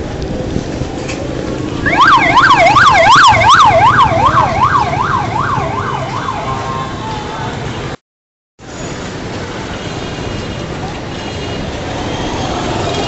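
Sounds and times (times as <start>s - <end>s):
street traffic noise: 0.0s - 8.0s, 8.6s - 13.0s
siren wailing: 1.8s - 7.5s.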